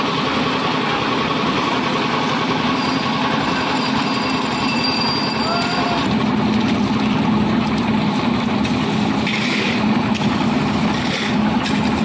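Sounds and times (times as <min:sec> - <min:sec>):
concrete mixer engine running: 0:00.0 - 0:12.0.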